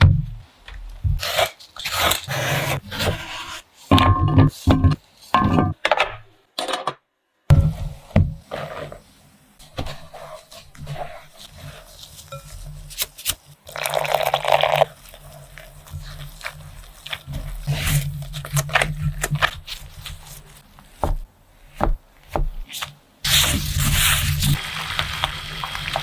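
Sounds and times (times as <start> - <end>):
dough squishing: 9.6 - 24.6
crunching of dry starch: 12.9 - 20.7.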